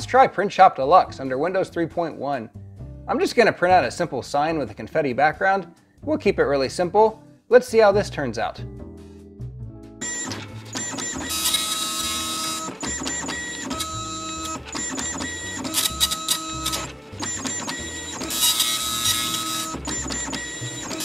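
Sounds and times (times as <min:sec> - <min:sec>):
printer head buzzing: 0:10.0 - 0:21.0
printer steady whine: 0:10.0 - 0:21.0.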